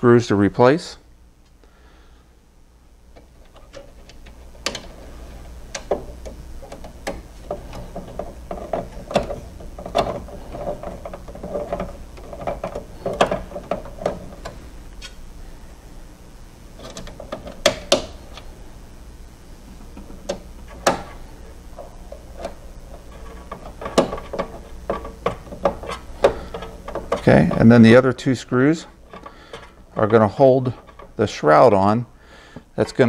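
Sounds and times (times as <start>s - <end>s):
plastic and metal parts handled: 3.2s - 15.2s, 19.9s - 27.7s, 29.0s - 31.3s.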